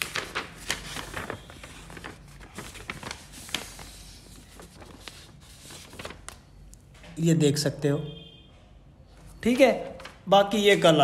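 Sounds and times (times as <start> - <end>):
paper rustling and crinkling: 0.0 - 6.8, 9.8 - 11.0.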